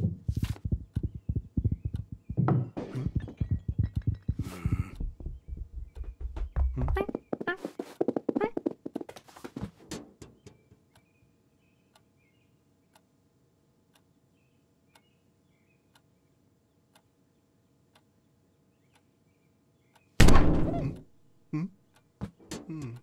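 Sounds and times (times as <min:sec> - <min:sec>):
clock ticking: 0:00.0 - 0:07.6.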